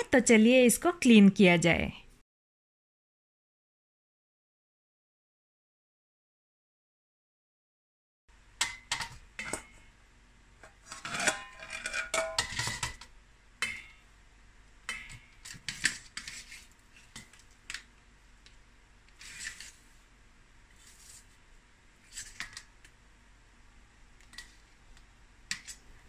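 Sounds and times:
metal spatula clinking on pot: 0:11.1 - 0:13.0.

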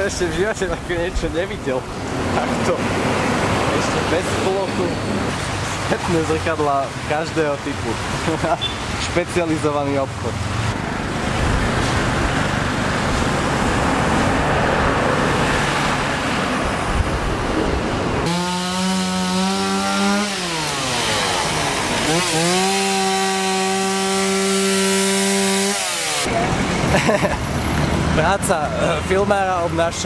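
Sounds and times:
street traffic: 0:00.0 - 0:30.0
chainsaw cutting wood: 0:18.2 - 0:26.3.

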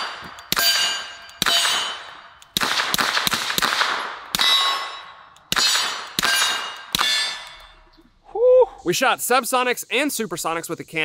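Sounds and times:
metallic clang of steel target: 0:00.0 - 0:02.4, 0:04.3 - 0:07.9
suppressed pistol shots: 0:00.0 - 0:07.6.

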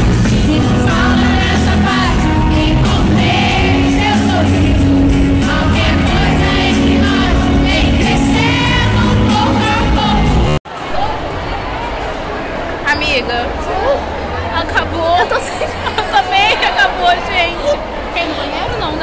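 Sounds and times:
crowd singing along: 0:00.0 - 0:10.6
live pop music with heavy bass: 0:00.0 - 0:10.6
person singing melody: 0:08.1 - 0:10.6.

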